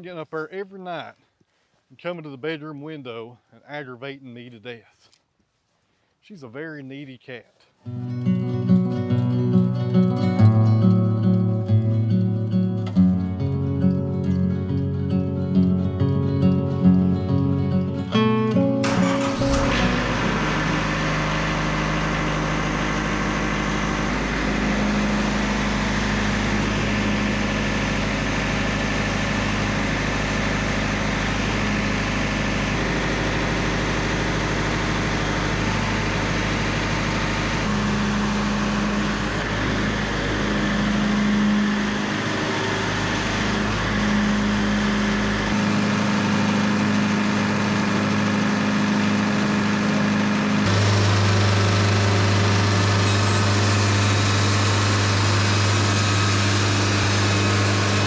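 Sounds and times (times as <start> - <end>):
sawmill band blade cutting wood: 50.6 - 58.0.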